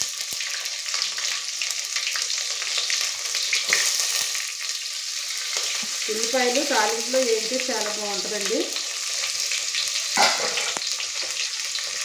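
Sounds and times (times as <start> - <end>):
onions sizzling in hot oil: 0.0 - 12.0.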